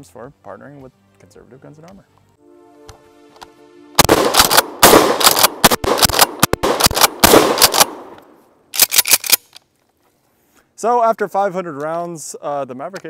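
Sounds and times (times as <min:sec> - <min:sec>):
shotgun shots: 0:04.0 - 0:09.2.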